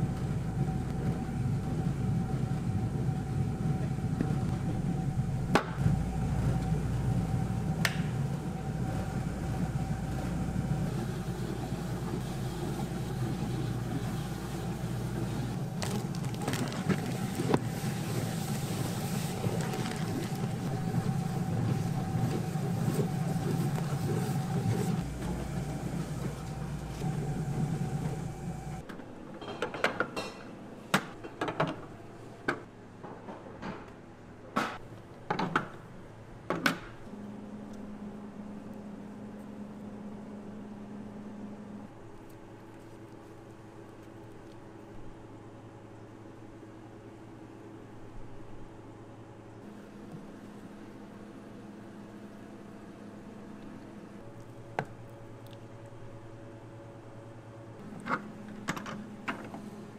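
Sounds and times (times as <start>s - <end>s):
machine motor humming with whine: 0.0s - 28.8s.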